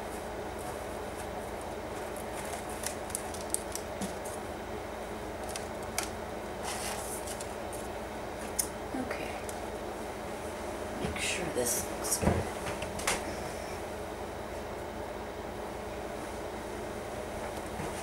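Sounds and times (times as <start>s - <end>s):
steady background hum: 0.0s - 18.0s
ribbon and paper rustling: 0.6s - 4.4s, 5.4s - 8.0s.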